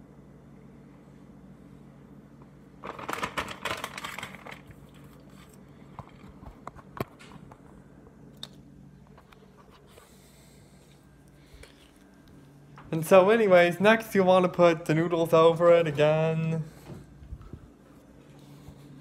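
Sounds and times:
faint hum: 0.0 - 19.0
plastic bag crinkling: 2.8 - 5.5.

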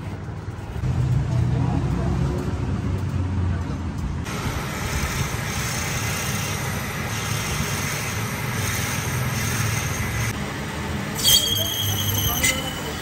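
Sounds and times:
road traffic rumble and hiss: 0.0 - 13.0.

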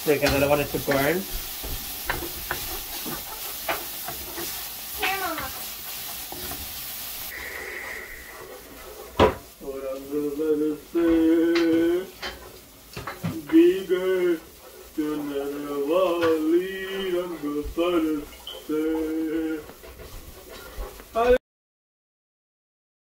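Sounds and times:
sizzling: 0.0 - 21.4
spoon scraping in pot: 0.2 - 9.6, 14.4 - 21.2
voices: 5.0 - 5.6, 13.2 - 19.8.

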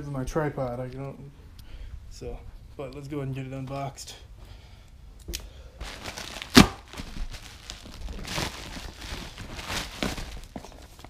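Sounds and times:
envelope tearing: 5.8 - 11.0
plastic envelope crinkling: 5.8 - 11.0.

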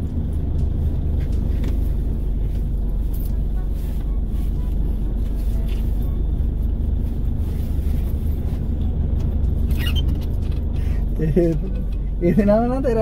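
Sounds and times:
car running low rumble: 0.0 - 13.0.

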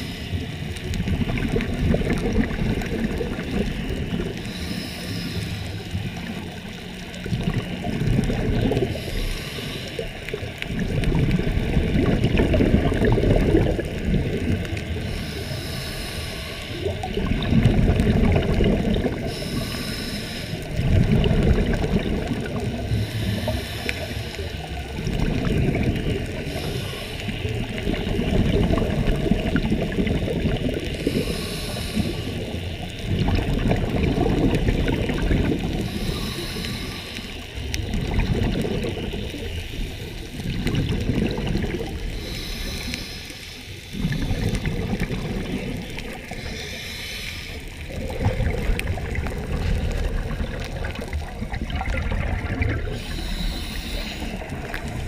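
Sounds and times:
regulator inhalation hiss: 0.0 - 0.6, 4.4 - 6.1, 8.9 - 10.4, 14.9 - 17.0, 19.2 - 20.7, 22.9 - 24.8, 26.4 - 28.0, 30.9 - 32.8, 35.8 - 37.6, 42.1 - 44.7, 46.2 - 48.1, 52.9 - 55.0
exhaled air bubbling underwater: 0.0 - 55.0.

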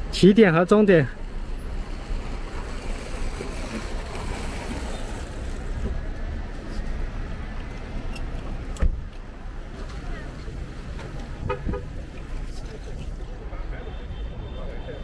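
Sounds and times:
street traffic noise: 0.0 - 15.0.

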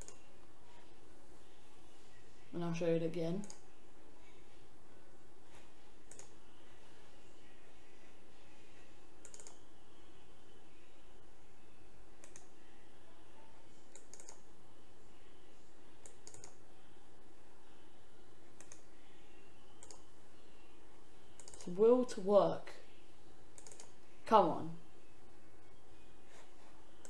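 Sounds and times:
computer mouse buttons clicking: 0.0 - 0.2, 6.1 - 6.4, 9.2 - 9.6, 12.2 - 12.5, 13.9 - 14.4, 16.0 - 16.6, 18.6 - 18.8, 19.8 - 20.0, 21.4 - 21.7, 23.6 - 23.9.

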